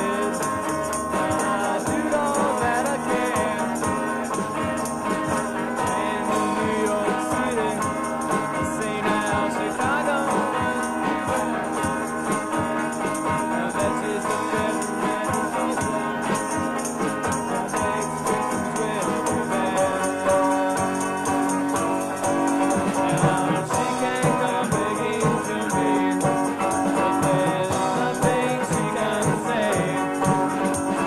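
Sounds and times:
garage rock guitars and fuzz bass: 0:00.0 - 0:31.0
person singing: 0:00.0 - 0:31.0
rattling percussion: 0:00.0 - 0:31.0
steady drum beat: 0:00.0 - 0:31.0.

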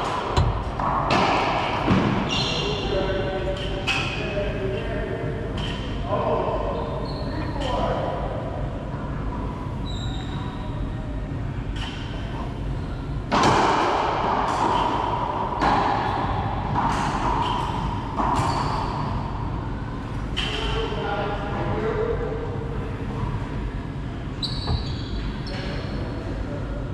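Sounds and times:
racquetball hits echoing: 0:00.0 - 0:04.3, 0:13.3 - 0:19.4.

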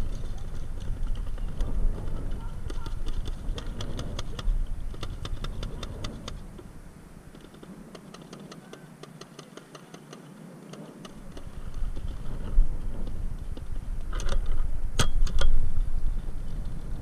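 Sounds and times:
distant paintball markers firing: 0:01.1 - 0:06.7, 0:07.3 - 0:11.8
low rumble: 0:11.2 - 0:17.0.

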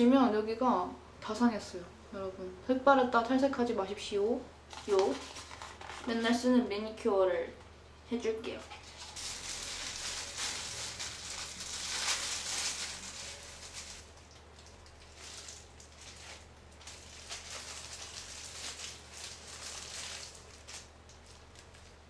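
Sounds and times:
hair and plastic gloves rustling: 0:04.7 - 0:06.5, 0:08.5 - 0:22.0.

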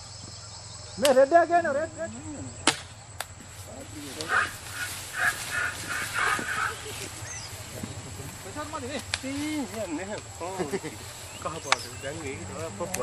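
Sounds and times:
men shouting: 0:01.0 - 0:02.6, 0:03.8 - 0:13.0
sharp cracks: 0:02.6 - 0:03.4, 0:08.9 - 0:10.3.

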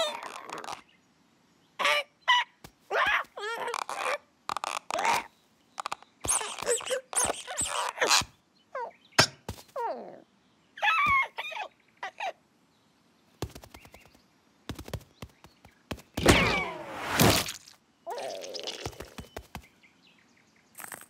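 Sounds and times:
cartoon bird squawking: 0:00.0 - 0:00.8, 0:01.8 - 0:04.2, 0:04.8 - 0:05.3, 0:06.2 - 0:08.9, 0:10.8 - 0:12.4.

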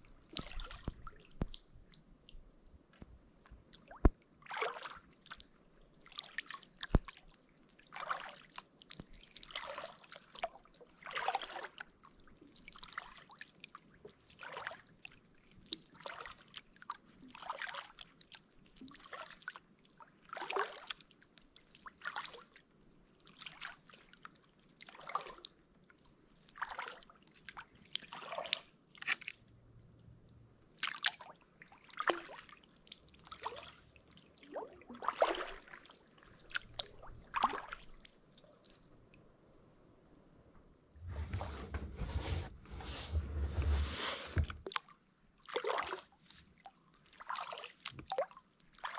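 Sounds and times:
kayak paddle splashing: 0:00.2 - 0:01.6, 0:34.4 - 0:38.1.

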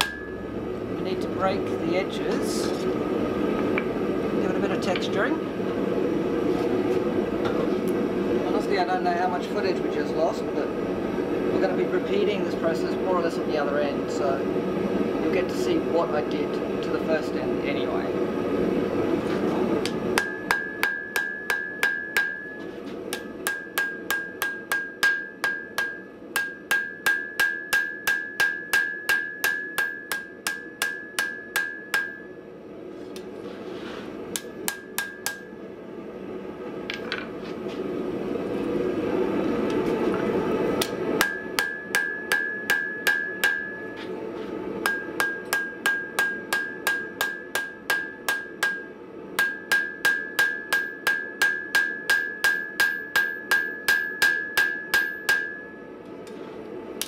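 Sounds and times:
hammer ringing on anvil: 0:00.0 - 0:00.6, 0:20.2 - 0:32.4, 0:34.3 - 0:35.6, 0:40.8 - 0:44.0, 0:44.8 - 0:55.9.

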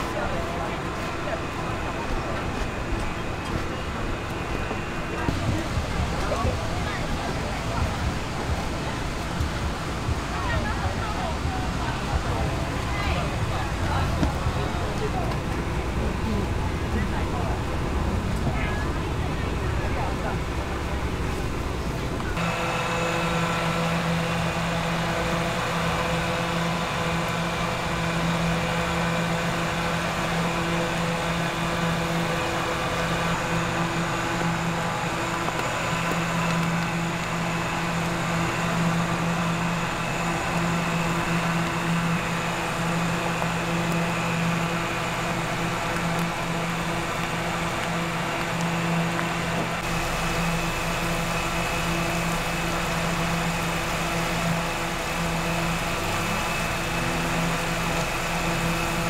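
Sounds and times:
held steady tones: 0:00.0 - 0:59.0
motor humming: 0:00.0 - 0:59.0.

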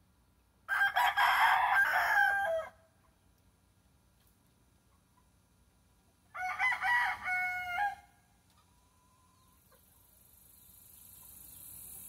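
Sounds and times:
rooster crowing: 0:00.7 - 0:02.8, 0:06.3 - 0:08.2.

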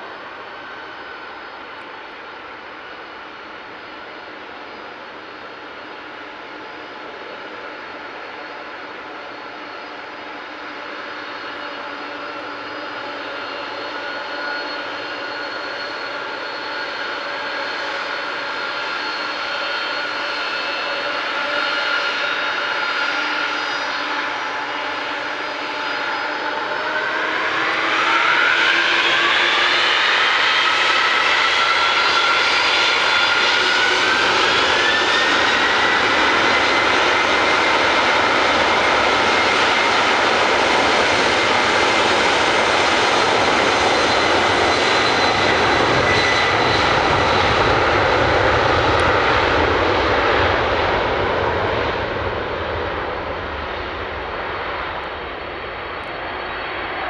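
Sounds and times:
jet engines whining: 0:00.0 - 0:57.0.

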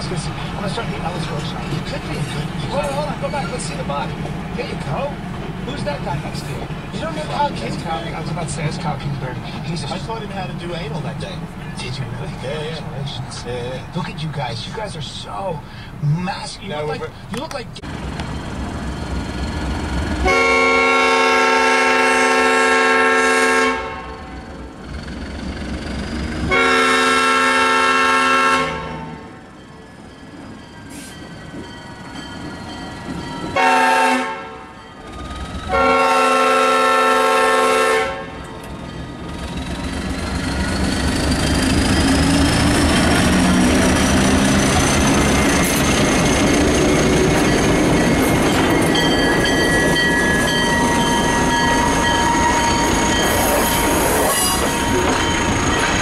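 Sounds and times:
locomotive engine passing: 0:00.0 - 0:56.0
passenger cars rumbling: 0:00.0 - 0:56.0
locomotive air horn blasts: 0:20.2 - 0:24.4, 0:26.5 - 0:29.3, 0:33.6 - 0:34.8, 0:35.7 - 0:38.4.

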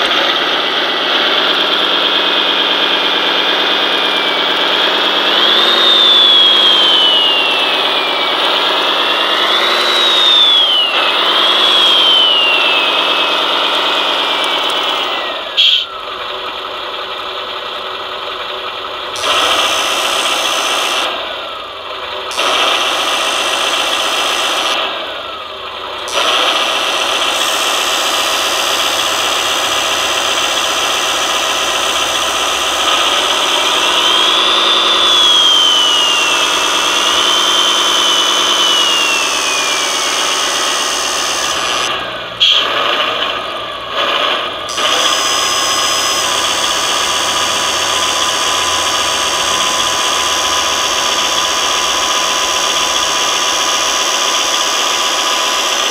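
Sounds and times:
electronic diesel engine sound revving: 0:00.0 - 0:55.9
high whine: 0:02.1 - 0:17.2, 0:26.4 - 0:55.9.

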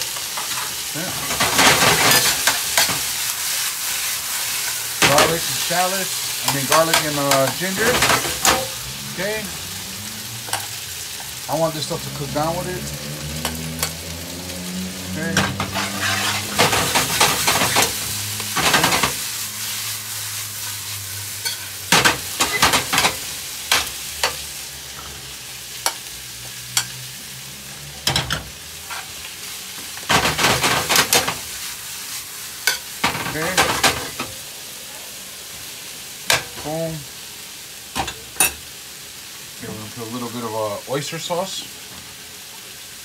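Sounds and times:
food sizzling in a skillet: 0:00.0 - 0:43.0
clattering and scraping in pan: 0:00.3 - 0:03.1, 0:15.3 - 0:19.3, 0:21.4 - 0:24.4, 0:29.9 - 0:31.6, 0:32.7 - 0:34.4.

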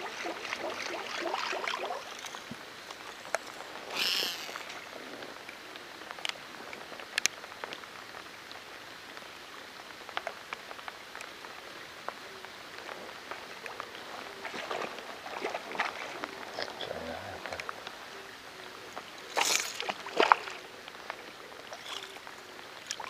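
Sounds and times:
rain falling on river: 0:00.0 - 0:23.0
raindrop ticks: 0:04.5 - 0:09.3, 0:09.9 - 0:14.0, 0:17.4 - 0:18.0.

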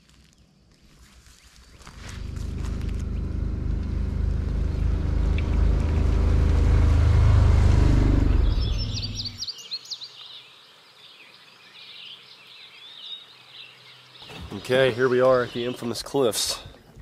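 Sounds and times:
utility vehicle engine running: 0:01.8 - 0:09.4
birds chirping and singing: 0:08.0 - 0:10.5, 0:11.2 - 0:16.6.

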